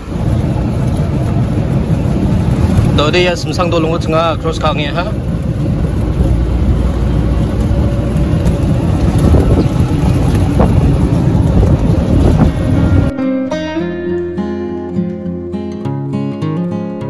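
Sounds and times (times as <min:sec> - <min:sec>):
car engine and road rumble: 0:00.0 - 0:13.1.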